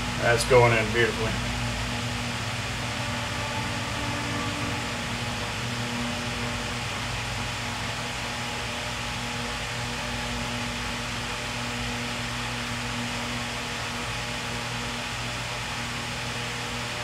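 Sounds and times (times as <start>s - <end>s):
fan motor hum: 0.0s - 17.0s.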